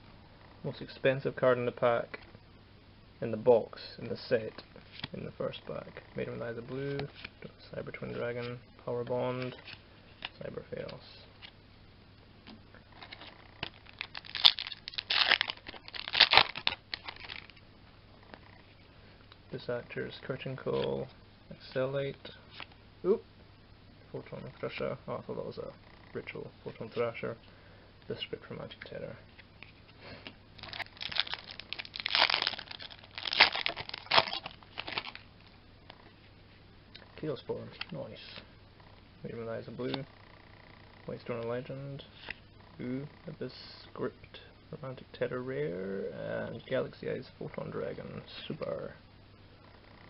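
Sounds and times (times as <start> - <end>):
foil wrapper crinkling and tearing: 13.0 - 17.6, 30.6 - 35.2.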